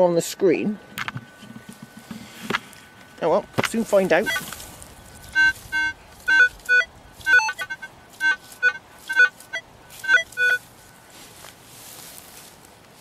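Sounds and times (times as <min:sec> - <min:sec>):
metal detector beeping: 0:03.2 - 0:11.2.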